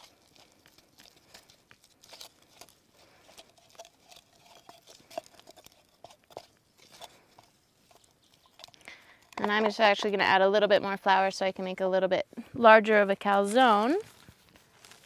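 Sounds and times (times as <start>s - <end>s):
hands squishing sticky dough: 0.0s - 10.3s.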